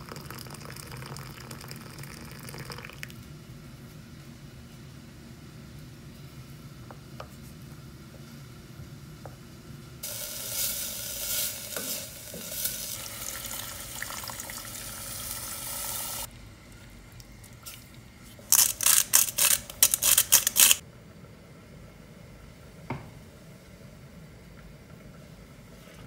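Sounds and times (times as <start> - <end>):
onion sizzling in a pot: 10.0 - 16.3.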